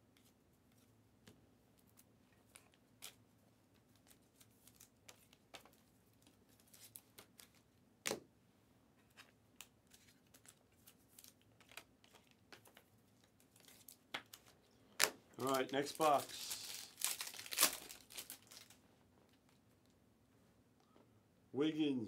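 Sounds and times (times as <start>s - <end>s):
trading cards and packaging rustling: 3.8s - 7.6s, 9.0s - 19.6s.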